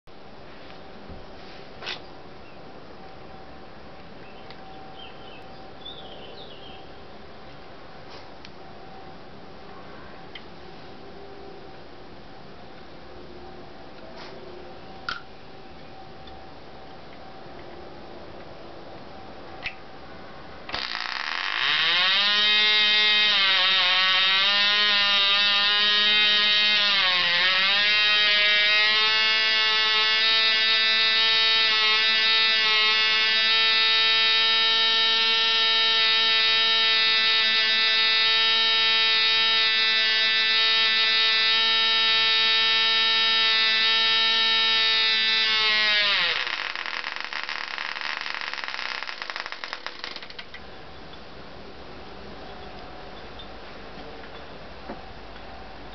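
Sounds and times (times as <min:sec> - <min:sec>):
model engine buzzing whine: 0:20.7 - 0:50.6.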